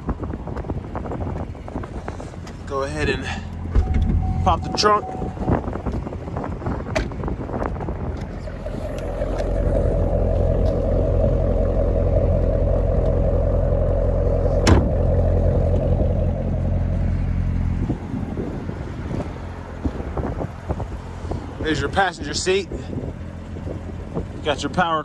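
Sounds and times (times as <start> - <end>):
car engine idling: 0.0 - 25.0
sharp thump: 3.7 - 4.5, 14.5 - 15.1.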